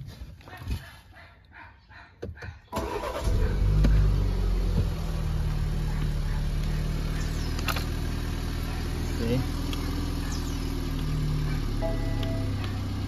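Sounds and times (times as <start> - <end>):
car starter cranking: 2.7 - 5.0
car engine revving then idling: 2.8 - 13.0.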